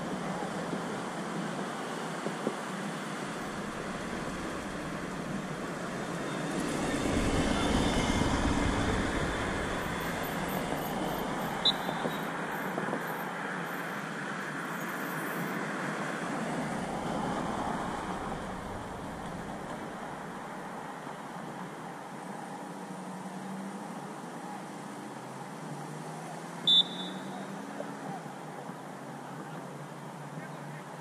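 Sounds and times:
distant road traffic: 0.0s - 31.0s
low rumble: 6.6s - 11.4s.

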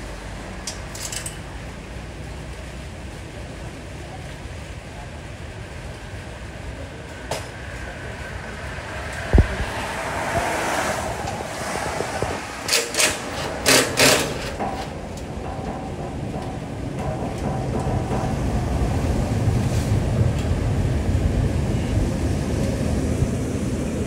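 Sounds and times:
steady rushing noise: 1.6s - 24.0s
harsh scraping or knocking: 9.4s - 18.7s.

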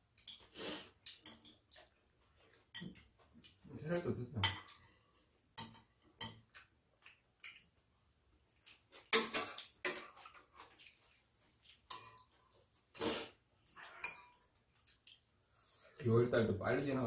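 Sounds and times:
utensils clinking on ceramic bowls: 1.1s - 1.9s, 4.4s - 6.5s, 11.9s - 12.4s, 13.9s - 14.4s.

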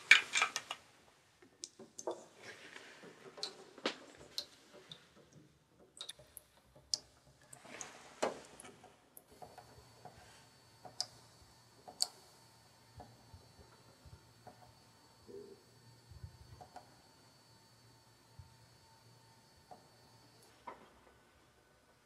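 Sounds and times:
faint steady hum: 6.0s - 22.0s
light clicks and taps: 10.8s - 11.2s.

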